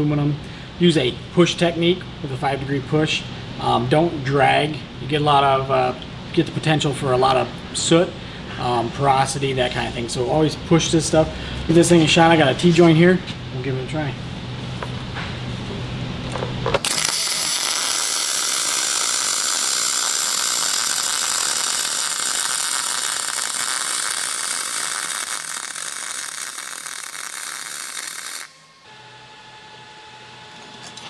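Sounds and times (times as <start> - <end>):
welding arc hissing: 16.8 - 28.9.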